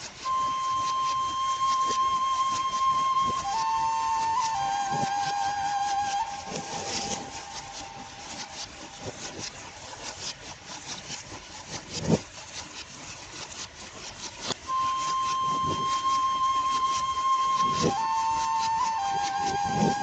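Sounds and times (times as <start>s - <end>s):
held flute note: 0.0s - 8.9s, 14.6s - 20.0s
clicking rubbing and knocking: 0.0s - 20.0s.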